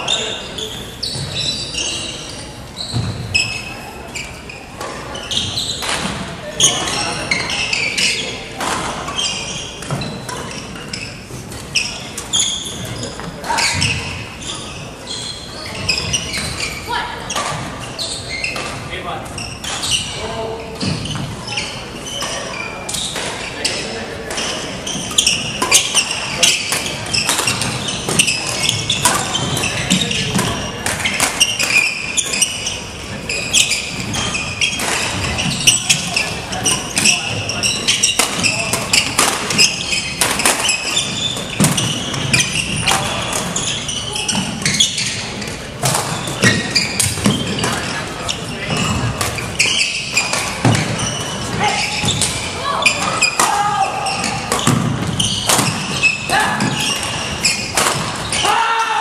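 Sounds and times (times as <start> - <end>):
faint echoing voices: 0.0 - 59.0
shoes squeaking on wooden floor: 0.0 - 59.0
racket hitting shuttlecock: 24.3 - 32.6, 37.9 - 43.6, 52.0 - 58.4.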